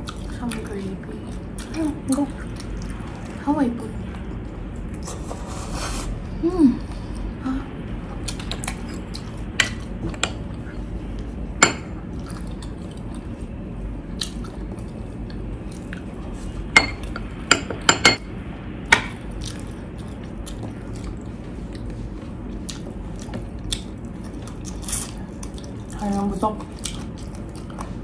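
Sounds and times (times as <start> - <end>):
chewing: 0.0 - 3.4, 12.1 - 13.5, 14.1 - 17.2, 19.2 - 28.0
low room noise: 0.0 - 28.0.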